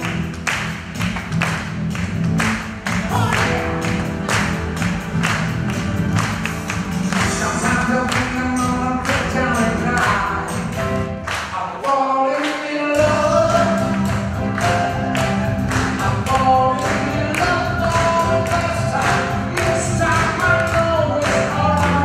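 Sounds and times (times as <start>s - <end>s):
steady drum beat: 0.0s - 11.0s, 13.0s - 22.0s
live band music: 0.0s - 22.0s
man singing: 7.0s - 14.6s, 15.6s - 22.0s.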